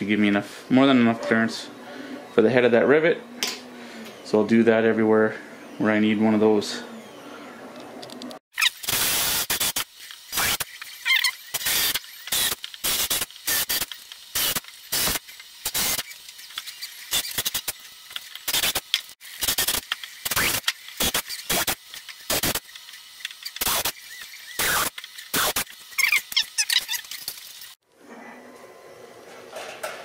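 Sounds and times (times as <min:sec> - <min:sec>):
cordless drill bursts: 0:08.6 - 0:16.3.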